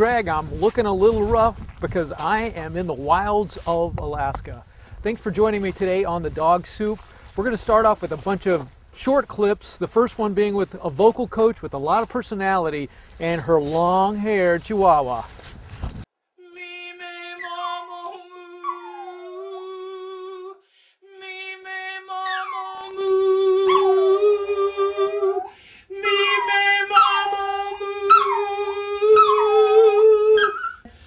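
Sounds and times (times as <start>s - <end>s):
woman singing sustained note: 16.4s - 21.7s
dog howling: 18.6s - 19.8s, 23.6s - 25.5s, 26.1s - 27.4s, 28.0s - 30.9s.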